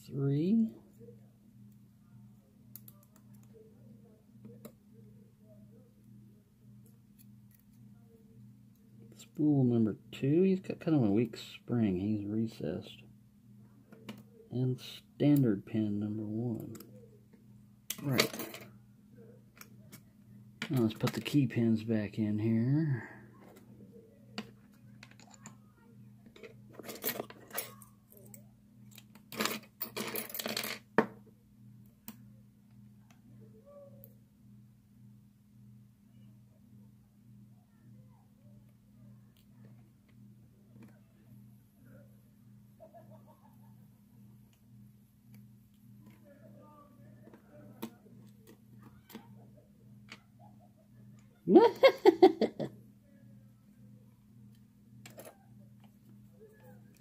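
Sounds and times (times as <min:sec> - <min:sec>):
person laughing: 0:42.8 - 0:43.9, 0:51.4 - 0:52.8.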